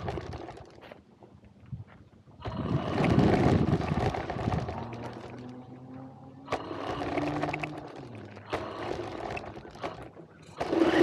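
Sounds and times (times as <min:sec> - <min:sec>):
gravel crunching under tyres: 0:00.0 - 0:11.0
motor whine: 0:02.4 - 0:11.0.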